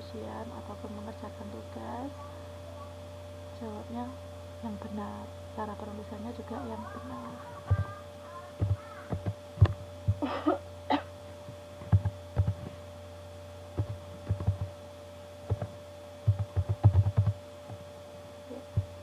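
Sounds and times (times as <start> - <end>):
steady electrical hum: 0.0 - 19.0
keyboard typing: 8.6 - 10.2, 11.9 - 12.7, 13.8 - 14.7, 15.5 - 17.8.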